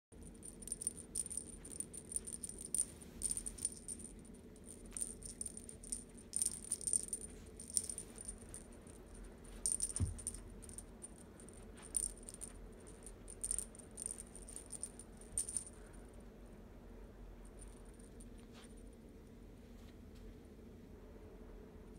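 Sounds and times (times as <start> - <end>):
cat toy rattling and jingling: 0.2 - 15.8.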